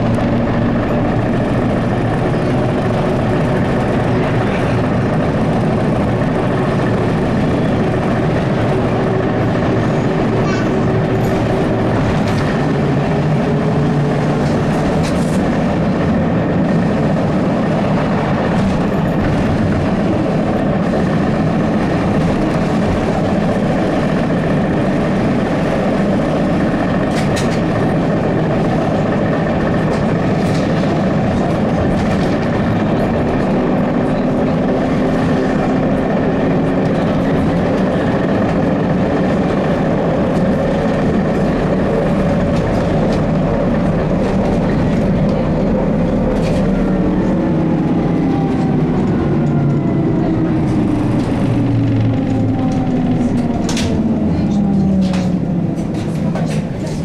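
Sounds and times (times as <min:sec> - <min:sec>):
road and body rumble: 0:00.0 - 0:57.0.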